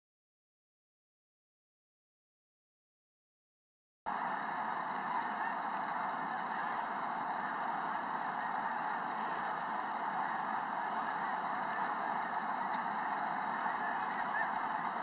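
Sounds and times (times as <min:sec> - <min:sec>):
flock of geese calling: 0:04.1 - 0:15.0.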